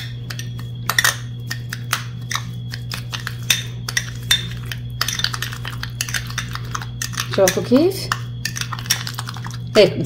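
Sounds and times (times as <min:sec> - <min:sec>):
spoon scraping glass bowl: 0:00.0 - 0:09.9.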